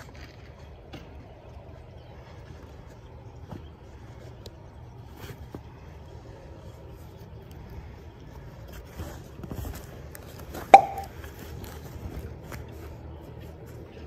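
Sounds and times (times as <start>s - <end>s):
snap closure popping: 10.8s - 11.1s.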